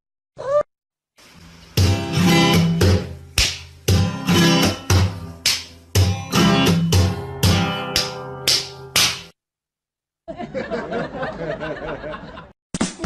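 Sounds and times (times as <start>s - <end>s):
strummed guitar chords: 1.8s - 9.2s.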